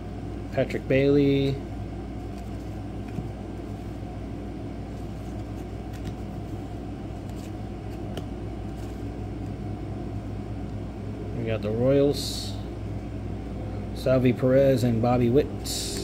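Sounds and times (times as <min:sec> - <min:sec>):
steady low hum: 0:00.0 - 0:16.0
cards being flipped by hand: 0:02.2 - 0:04.0, 0:04.9 - 0:09.6.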